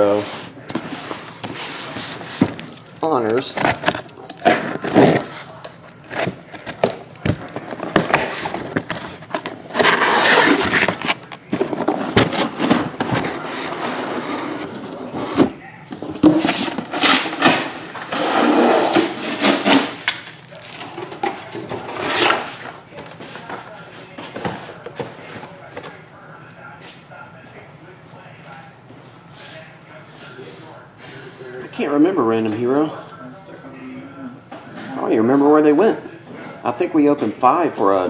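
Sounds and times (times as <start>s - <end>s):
cardboard being cut and torn: 9.5s - 15.3s.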